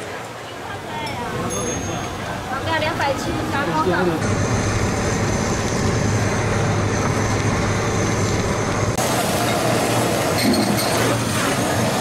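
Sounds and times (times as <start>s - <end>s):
low hum: 4.2s - 10.5s
blowtorch hissing: 4.2s - 12.0s.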